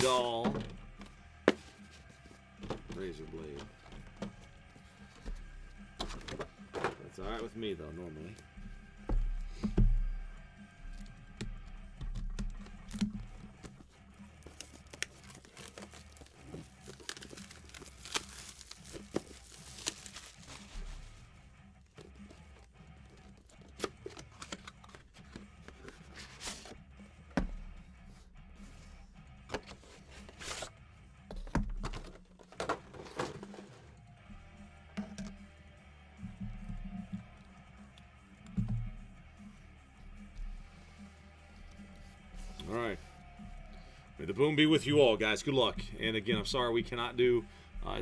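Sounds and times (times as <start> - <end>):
plastic wrap crinkling: 14.5 - 21.1.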